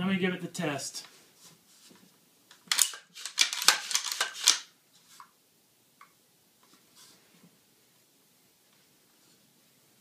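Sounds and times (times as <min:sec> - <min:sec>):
rifle handling clicks and rustles: 0:02.5 - 0:05.3.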